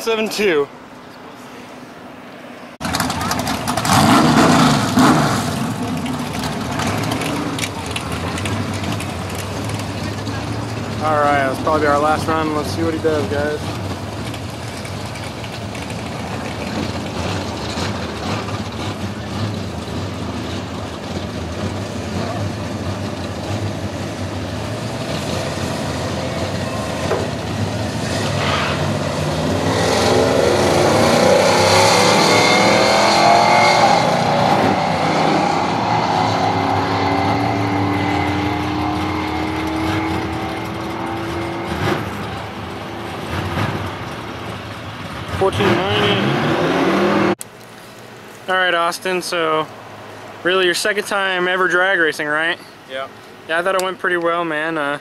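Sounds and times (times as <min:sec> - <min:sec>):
car engine idling: 0:02.8 - 0:04.2, 0:04.9 - 0:25.2
car engine revving at full throttle: 0:02.8 - 0:47.4.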